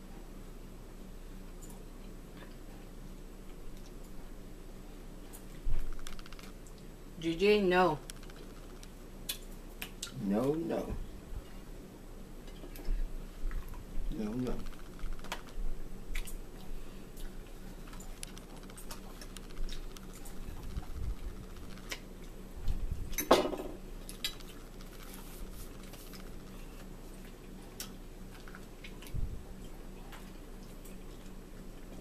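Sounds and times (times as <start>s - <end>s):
chewing: 14.6s - 22.8s, 24.0s - 32.0s.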